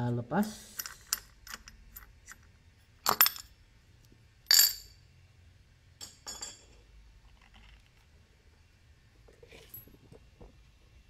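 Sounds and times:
metal parts clinking: 0.7 - 3.6, 4.5 - 5.0.

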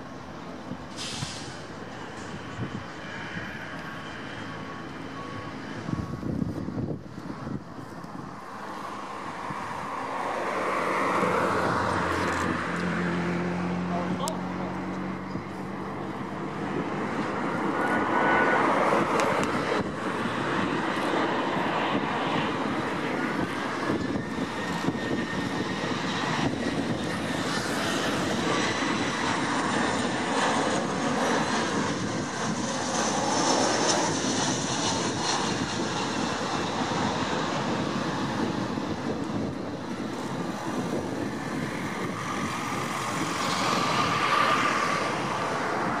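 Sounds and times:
airliner touching down on runway: 0.0 - 46.0
jet engine rumble and whine: 0.0 - 46.0.

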